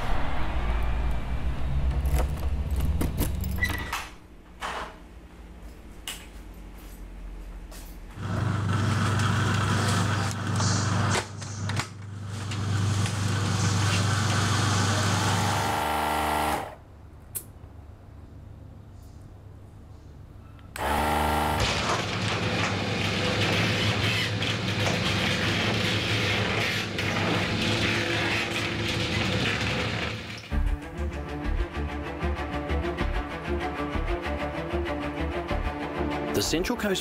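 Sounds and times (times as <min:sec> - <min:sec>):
low rumble: 0:00.0 - 0:03.6
motor humming: 0:20.8 - 0:22.1.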